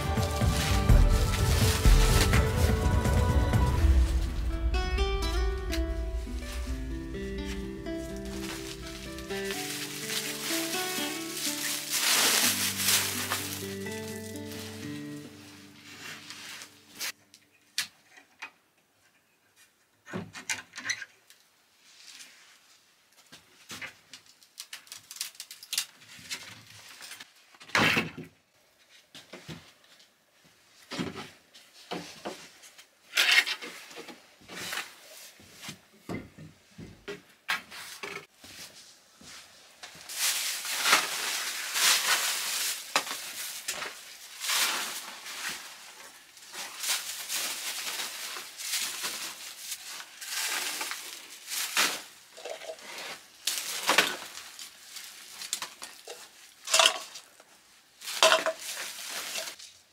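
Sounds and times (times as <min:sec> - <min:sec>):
rustling plastic sack: 0:00.0 - 0:04.8, 0:06.0 - 0:17.2, 0:39.9 - 0:59.9.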